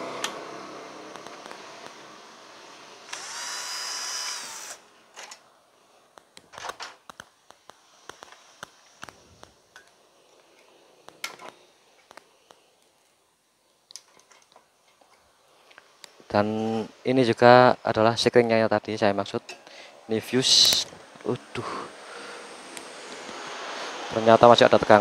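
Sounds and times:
small motor whining with hiss: 0.0s - 5.1s, 19.8s - 25.0s.

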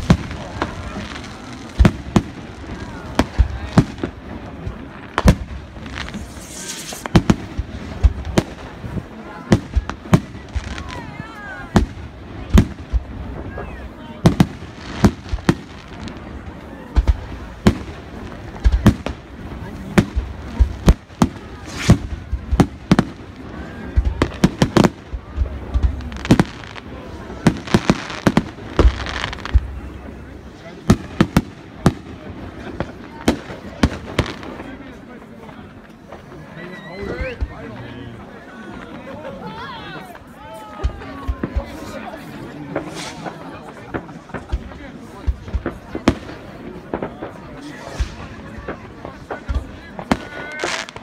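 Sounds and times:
fireworks bursting: 0.0s - 39.1s, 39.9s - 51.0s
firework shells bursting: 4.7s - 8.7s
high hiss: 6.0s - 7.2s.

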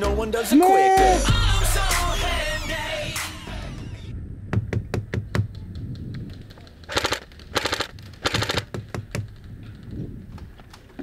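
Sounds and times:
airsoft gun shots: 6.9s - 8.7s.

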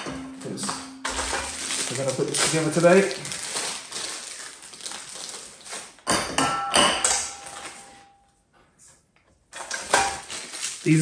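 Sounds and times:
plastic bag rustling: 0.0s - 6.1s, 9.6s - 11.0s.

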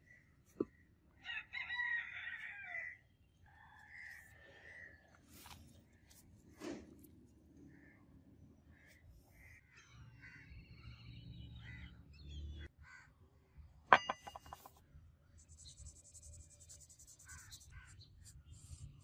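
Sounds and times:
metallic clink with ring: 13.9s - 14.6s
marker scratching on metal: 15.4s - 19.0s.

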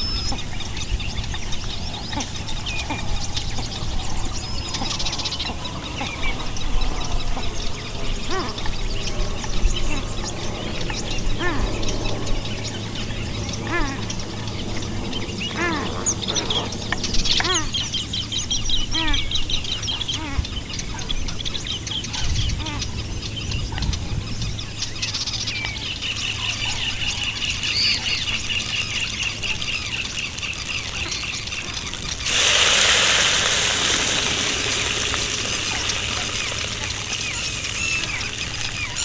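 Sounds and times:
small birds chirping: 0.0s - 39.0s
leaves sizzling in hot oil: 26.0s - 39.0s.

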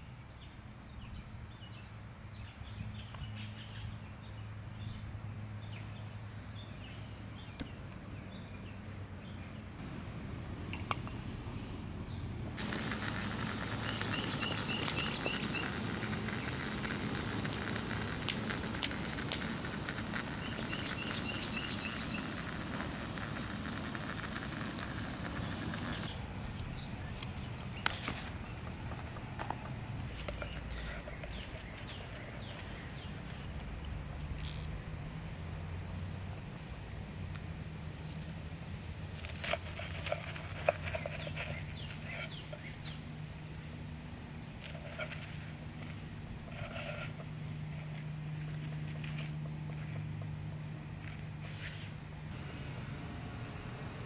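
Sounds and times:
gas camp stove hissing: 9.0s - 29.2s
campfire crackles: 9.7s - 34.8s, 44.6s - 50.2s
faint high chirps: 12.1s - 27.4s
sputtering clicks: 12.6s - 28.0s.

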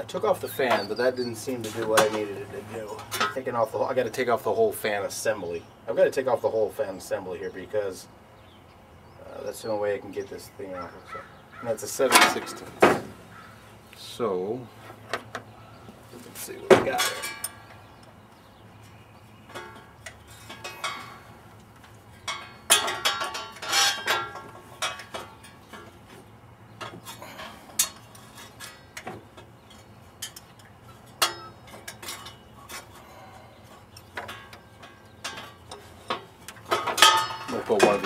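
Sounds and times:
wrench and bolts clinking on metal: 16.8s - 17.6s, 22.2s - 26.0s, 29.7s - 33.1s, 33.9s - 38.0s.

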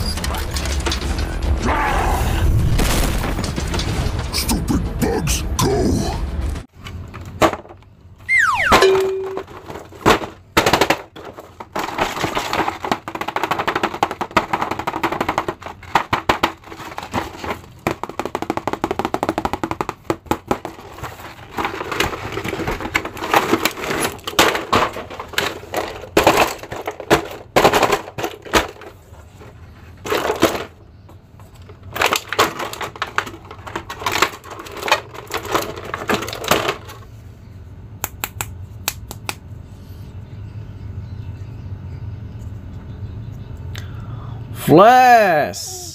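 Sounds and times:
falling tone: 8.3s - 9.4s
plastic rustling: 9.4s - 30.7s.

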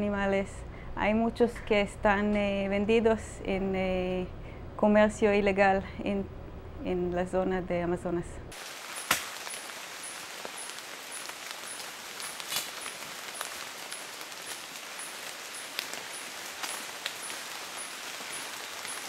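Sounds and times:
steady hiss: 8.5s - 19.0s
sharp snaps: 8.9s - 9.7s, 10.5s - 19.0s.

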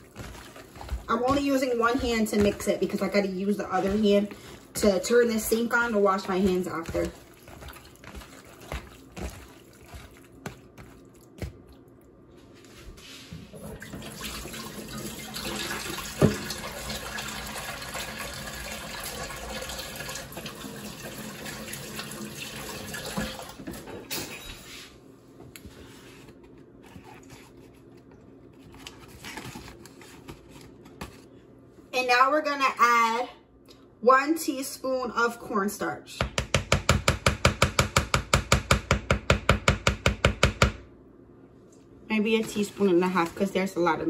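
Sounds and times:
hand mixing meat in plastic bowl: 0.0s - 13.2s, 42.1s - 44.0s
kitchen tap running: 13.6s - 23.8s.

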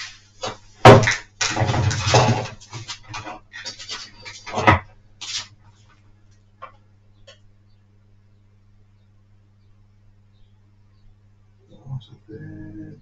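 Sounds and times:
low steady hum: 0.0s - 13.0s
tools knocking and rattling on workbench: 0.4s - 4.9s.

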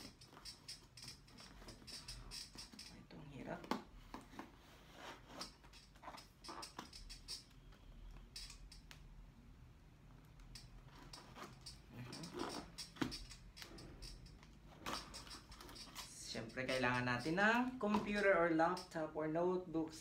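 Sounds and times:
knife scraping through tape: 10.6s - 17.4s.

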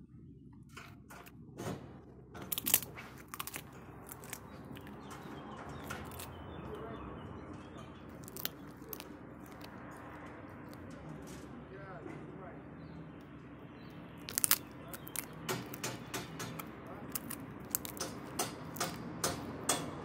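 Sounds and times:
dog gnawing a chew: 2.5s - 6.5s, 8.1s - 10.9s, 14.2s - 19.7s.

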